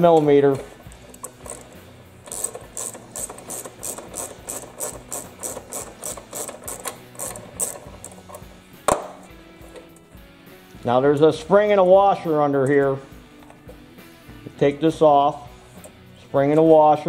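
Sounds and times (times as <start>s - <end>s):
socket ratchet clicking: 0.1s - 10.1s.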